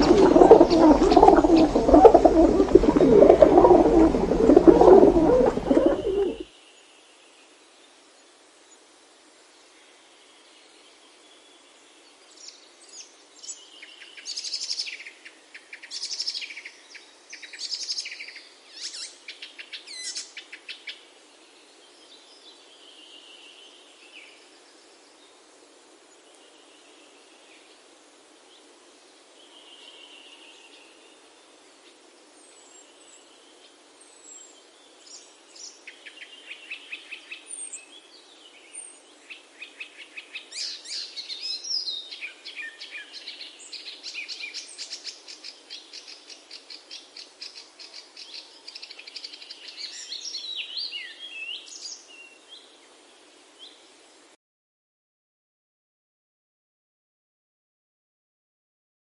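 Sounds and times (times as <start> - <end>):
small birds chirping: 0.0 - 6.5.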